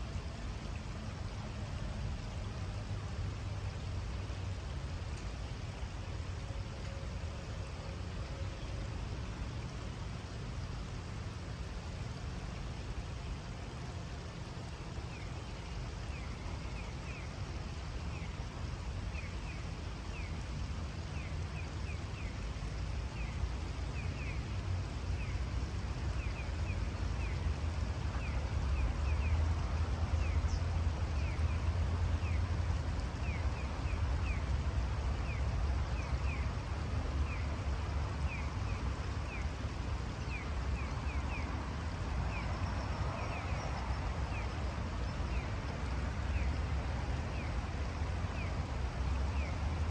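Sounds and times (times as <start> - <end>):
river water rushing: 0.0 - 49.9.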